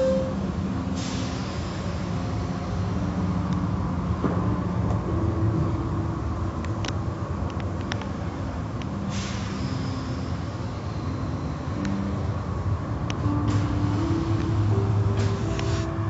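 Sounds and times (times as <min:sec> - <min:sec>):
low rumble of machinery: 0:00.0 - 0:16.0
hiss of spray: 0:00.9 - 0:02.9, 0:09.0 - 0:11.6, 0:13.5 - 0:16.0.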